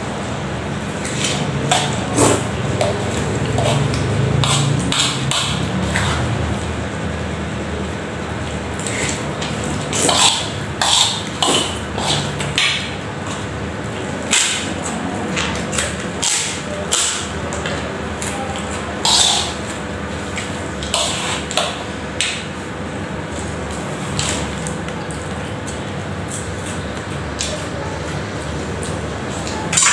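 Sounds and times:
steady background hum: 0:00.0 - 0:29.9.

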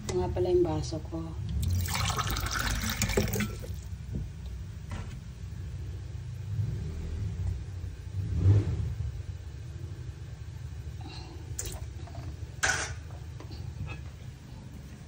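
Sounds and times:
tap water running into sink: 0:01.6 - 0:03.8.

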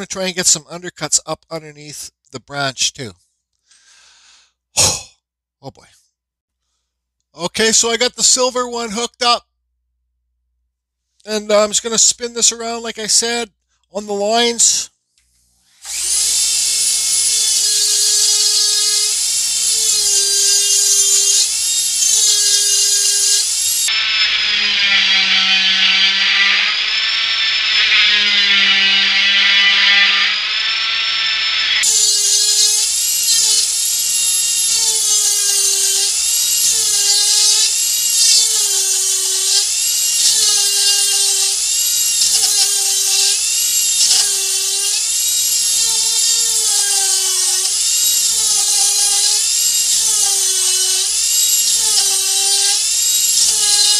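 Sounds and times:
rotary tool whining cutting wood: 0:15.4 - 0:53.9.

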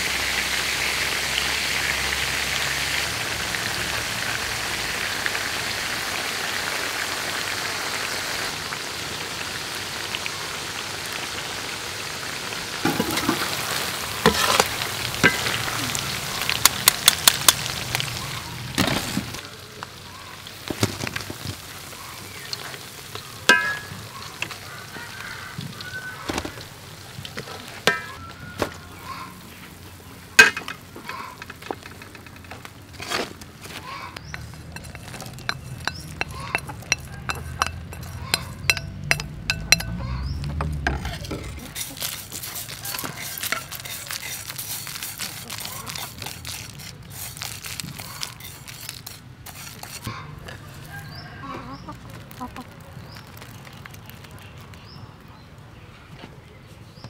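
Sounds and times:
shrimp sizzling in hot oil: 0:00.0 - 0:28.9, 0:34.2 - 0:50.2
metal utensils clinking: 0:12.8 - 0:17.8, 0:23.4 - 0:24.6, 0:27.8 - 0:28.2, 0:30.4 - 0:33.2, 0:34.2 - 0:50.1.

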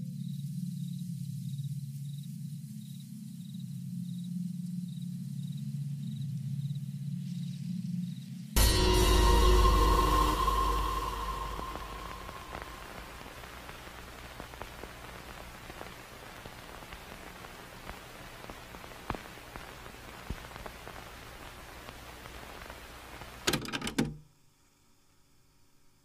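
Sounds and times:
steady hiss: 0:08.6 - 0:23.6
faint crackles and clicks: 0:12.6 - 0:23.9.

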